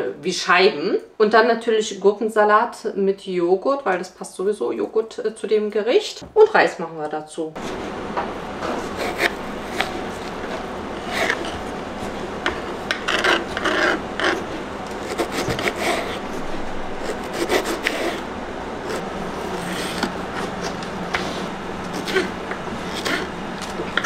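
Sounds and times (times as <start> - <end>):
knife chopping pepper: 12.4 - 16.3, 17.0 - 18.2
knife slicing on cutting board: 15.0 - 16.4.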